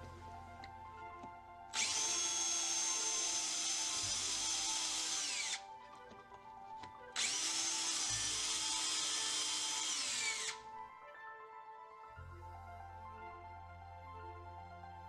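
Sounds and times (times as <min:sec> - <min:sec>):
cordless drill drilling panel: 0:01.7 - 0:06.2, 0:06.8 - 0:10.6.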